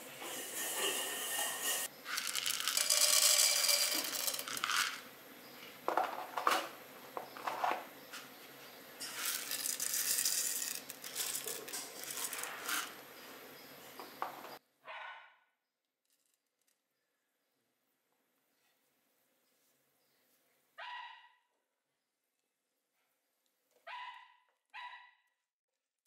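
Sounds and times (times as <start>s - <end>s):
lentils sizzling in oil: 0.2s - 5.1s, 9.0s - 13.0s
grains clicking against pan: 2.1s - 5.1s, 9.0s - 13.0s.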